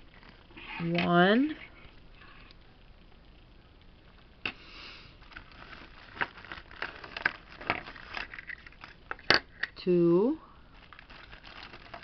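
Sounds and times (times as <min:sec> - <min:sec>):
plastic crinkling: 0:05.2 - 0:09.6, 0:10.6 - 0:12.0.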